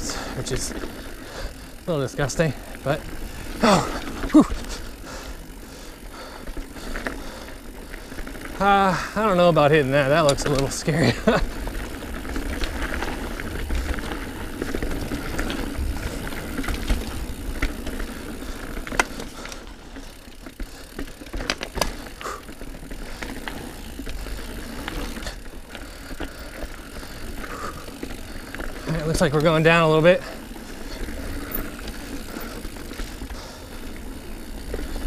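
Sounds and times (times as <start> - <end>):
bike drivetrain and frame rattle: 0.0 - 35.0
bike tyres on dirt: 0.0 - 35.0.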